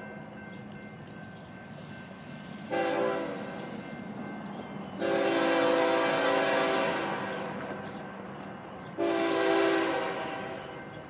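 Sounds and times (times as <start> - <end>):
locomotive air horn: 2.7 - 3.4, 5.0 - 7.5, 9.0 - 10.7.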